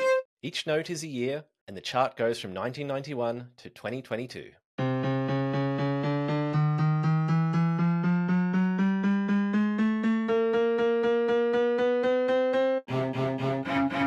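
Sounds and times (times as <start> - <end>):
short piano notes climbing: 4.8 - 14.0.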